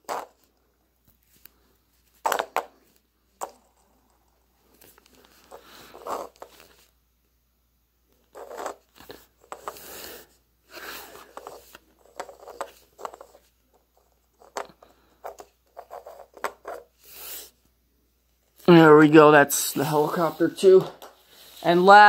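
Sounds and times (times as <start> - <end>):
toy scraping on wooden surface: 0.0 - 0.5, 5.4 - 6.8, 8.3 - 13.5.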